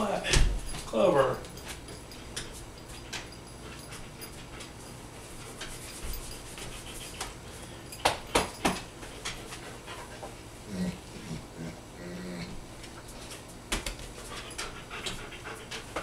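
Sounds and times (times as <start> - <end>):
dog pawing clicks and clinks: 0.6 - 9.7, 13.1 - 16.0.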